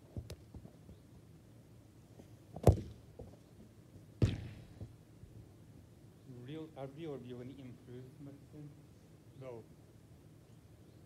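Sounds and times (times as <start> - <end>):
football being kicked: 2.6 - 3.3, 4.2 - 5.0.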